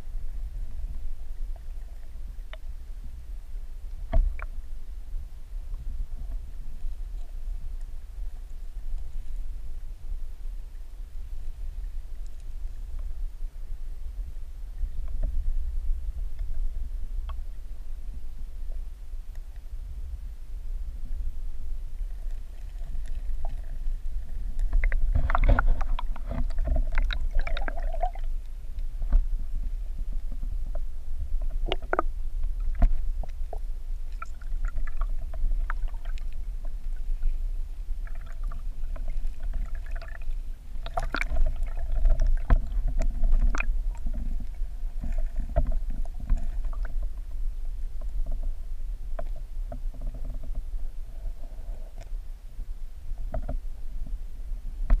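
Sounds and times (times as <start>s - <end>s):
underwater rumble of moving water: 0.0s - 55.0s
underwater clicks and knocks: 4.1s - 4.5s, 24.5s - 28.3s, 30.1s - 36.8s, 40.8s - 47.2s, 49.2s - 50.7s, 53.2s - 53.6s.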